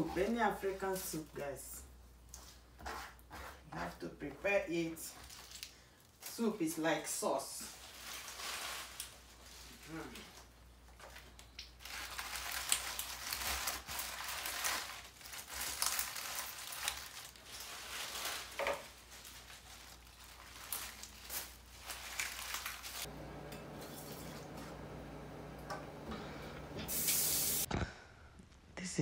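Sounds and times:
leaves rustling: 7.7s - 10.1s, 11.8s - 25.6s
steady low hum: 23.1s - 27.7s
tap water running into sink: 26.8s - 27.7s.

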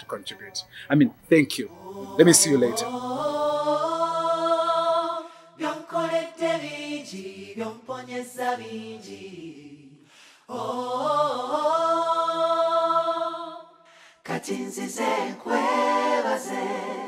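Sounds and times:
person singing unaccompanied: 1.6s - 9.2s.

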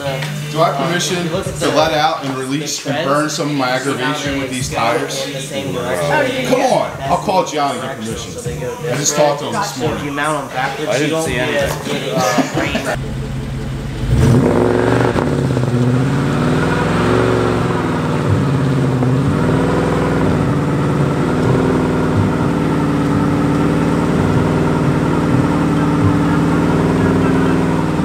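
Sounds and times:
tyres spinning: 8.0s - 28.0s
car engine revving hard: 13.0s - 28.0s.

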